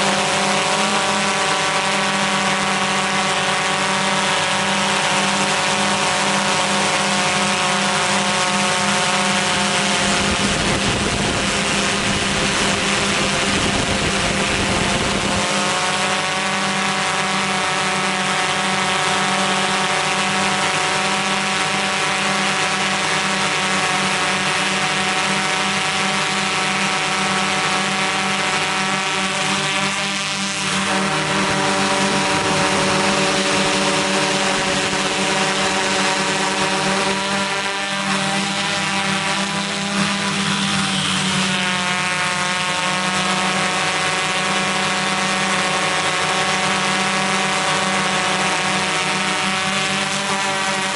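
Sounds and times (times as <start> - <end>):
drone motors humming: 0.0 - 50.9
wind rumble on microphone: 9.4 - 15.8.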